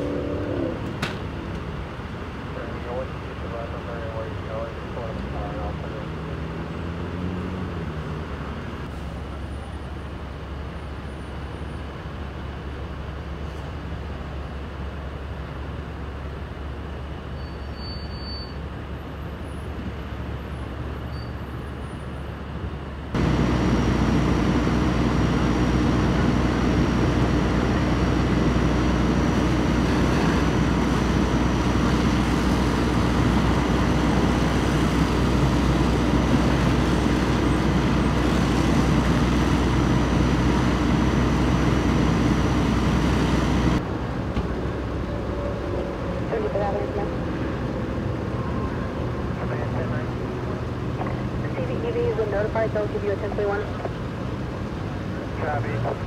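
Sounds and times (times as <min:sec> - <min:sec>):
engine drone: 0:00.0 - 0:10.2, 0:22.6 - 0:56.0.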